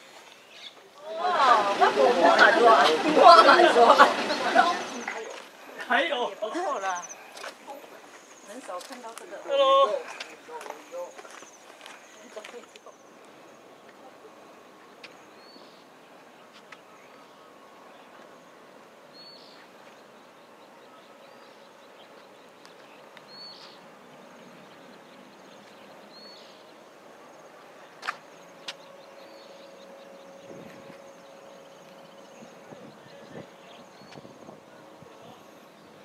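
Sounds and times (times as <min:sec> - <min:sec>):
steady outdoor hiss: 0:00.0 - 0:36.0.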